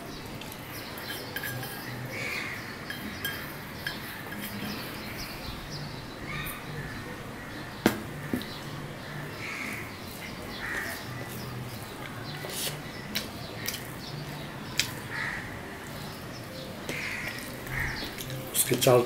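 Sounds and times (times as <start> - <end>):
fingers mixing rice on steel plate: 0.4 - 5.3.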